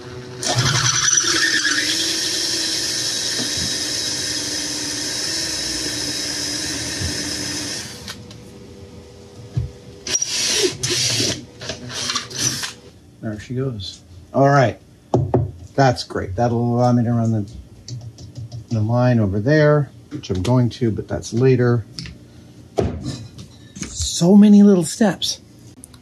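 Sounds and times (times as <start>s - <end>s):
power drill whining through plastic: 0.4s - 8.2s, 10.1s - 12.8s.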